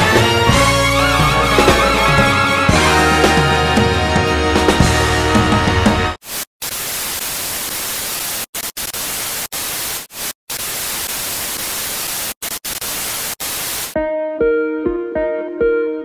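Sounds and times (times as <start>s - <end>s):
tv static hiss: 6.2s - 14.0s.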